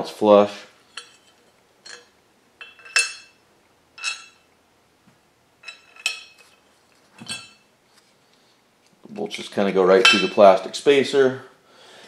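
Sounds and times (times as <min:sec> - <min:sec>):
metal plates and bolts clinking: 0:00.8 - 0:03.4, 0:04.0 - 0:04.5, 0:05.6 - 0:06.6, 0:07.2 - 0:07.7, 0:10.0 - 0:10.5.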